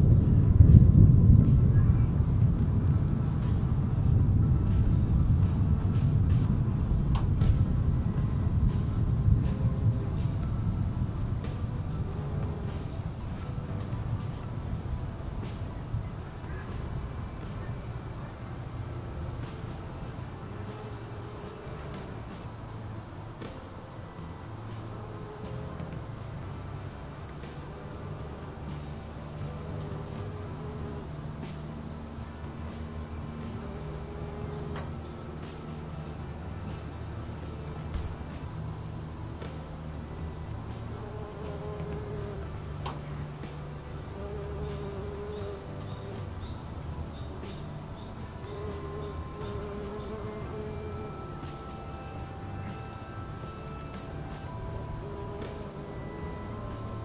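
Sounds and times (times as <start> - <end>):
low rumble: 0.0 - 23.3
insects trilling: 0.0 - 57.0.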